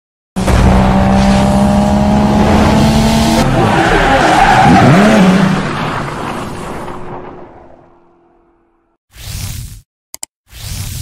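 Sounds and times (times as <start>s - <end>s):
tyres squealing and skidding: 3.2s - 7.9s.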